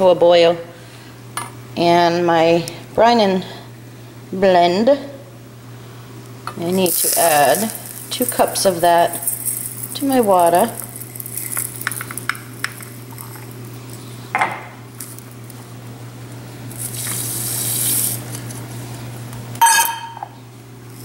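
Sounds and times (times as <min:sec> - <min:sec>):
granules pouring into metal cup: 0:06.8 - 0:14.0.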